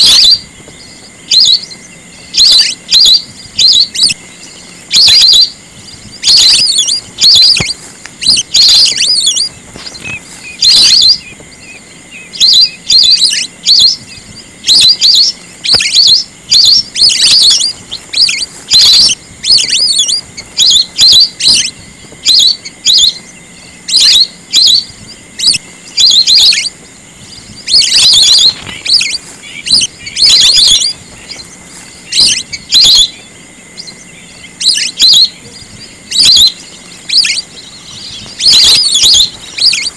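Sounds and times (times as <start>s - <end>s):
ducks whistling calls: 0.0s - 39.9s.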